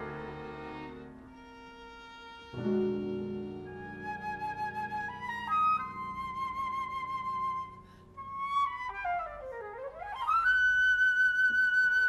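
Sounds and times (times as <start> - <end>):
soft low accompaniment: 0.0 - 12.0
chamber music melodic line: 2.6 - 9.0.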